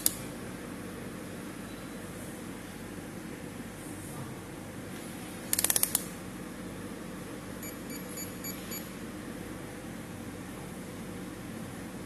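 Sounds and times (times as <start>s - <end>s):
low electrical hum: 0.0s - 12.0s
lock buzzer short beeps: 7.6s - 8.9s.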